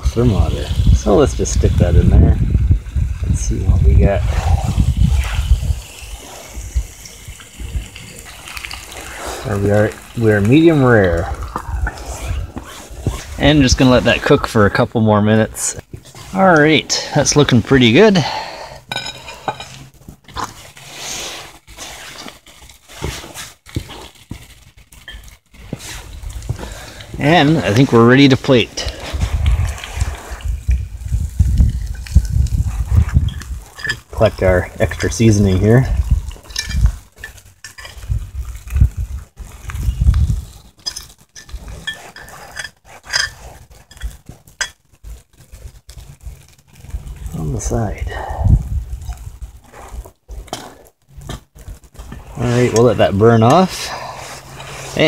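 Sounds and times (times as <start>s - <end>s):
fork scraping cast iron skillet: 18.9s - 23.4s, 40.8s - 44.8s, 52.0s - 55.0s.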